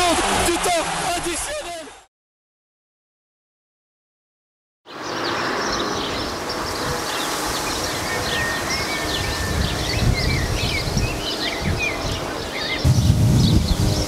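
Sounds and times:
small birds chirping: 4.9s - 14.0s
steady outdoor hiss: 5.0s - 14.0s
wind rumbling on microphone: 5.9s - 14.0s.

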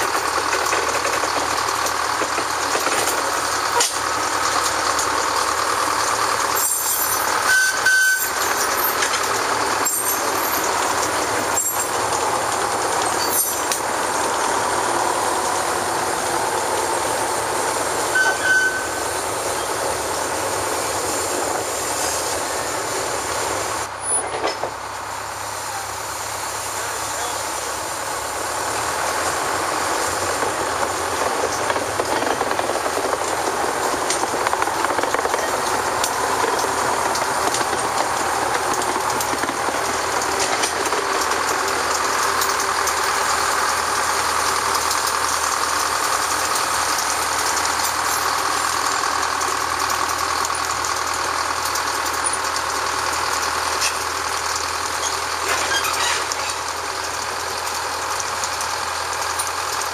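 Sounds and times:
small locomotive running: 0.0s - 59.9s
high squeaks: 18.1s - 19.0s, 55.0s - 56.7s.

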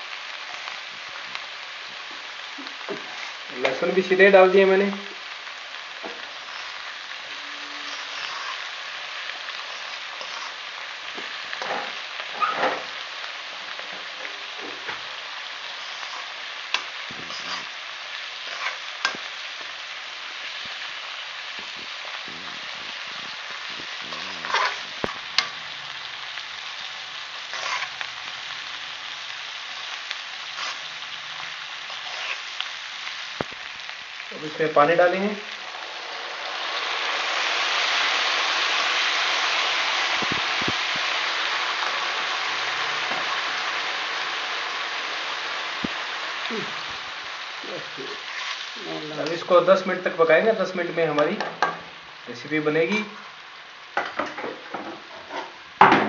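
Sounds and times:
vegetables sizzling in oil: 0.0s - 56.0s
spatula scraping and knocking pan: 24.1s - 25.6s.

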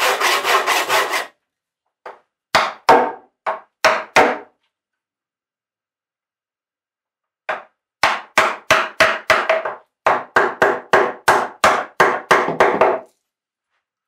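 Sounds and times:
wooden mallet striking chisel: 2.0s - 4.6s, 7.4s - 13.1s.

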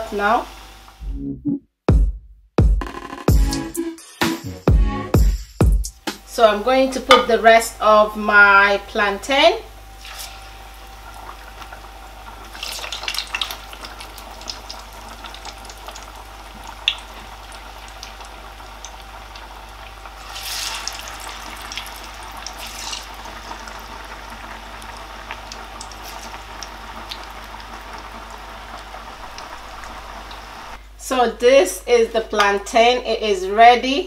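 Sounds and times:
loud sizzle surge: 9.6s - 30.8s
oil bubbling and crackling: 9.7s - 30.8s.

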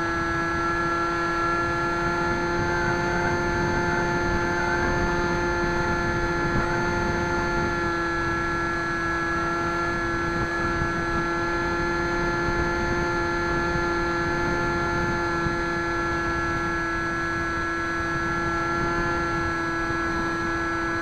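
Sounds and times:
electric motor and propeller whine: 0.0s - 21.0s
wind noise: 0.0s - 21.0s.

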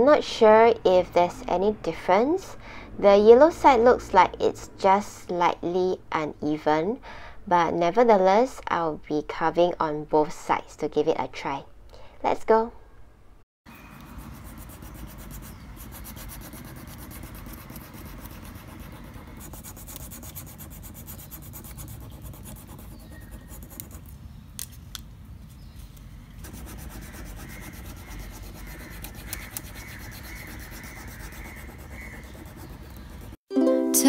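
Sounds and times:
scratchy rubbing on paper: 14.1s - 24.1s, 26.4s - 33.4s.

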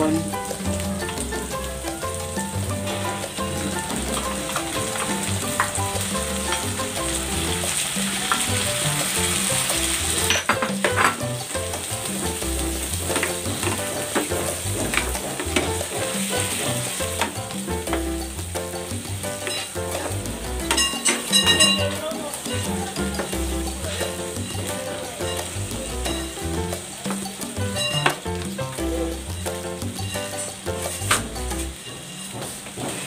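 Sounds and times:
background music: 0.0s - 33.0s
shrimp sizzling in oil: 0.0s - 33.0s
spatula scraping and tapping pan: 0.4s - 33.0s.

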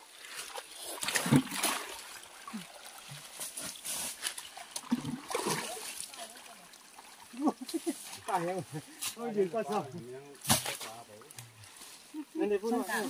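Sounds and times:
splashing in shallow water: 0.0s - 9.6s.

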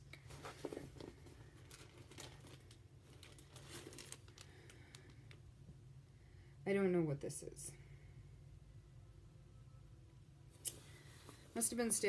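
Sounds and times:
low room hum: 0.0s - 12.0s
plastic bag crinkling: 0.2s - 5.4s.

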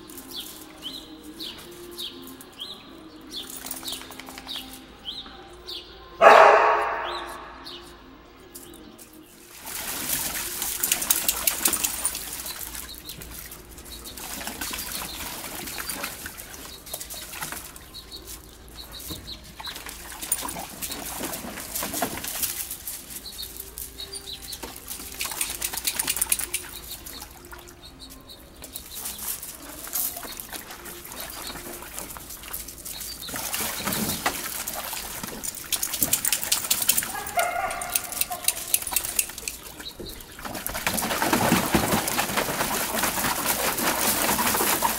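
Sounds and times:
dogs splashing in water: 9.4s - 44.9s.

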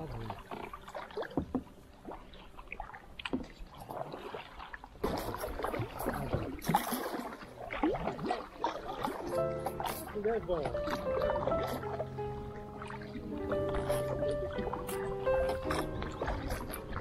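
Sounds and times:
paddle strokes in water: 0.0s - 17.0s
water splashing and dripping: 0.0s - 17.0s.

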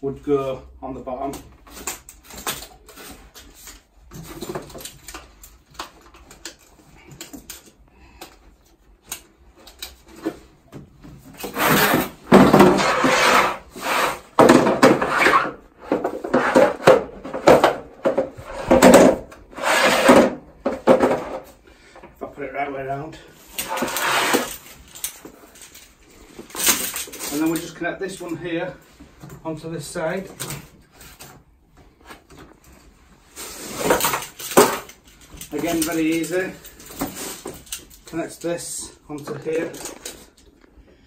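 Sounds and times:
plastic case scraping on concrete: 11.4s - 21.6s, 23.5s - 24.8s.

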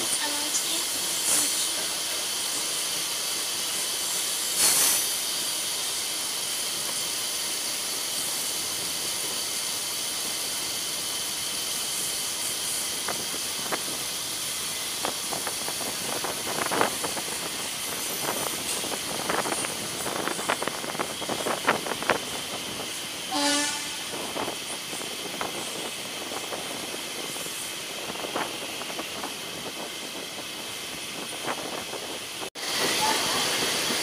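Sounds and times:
train rushing hiss: 0.0s - 34.0s
train horn blast: 23.3s - 24.2s.

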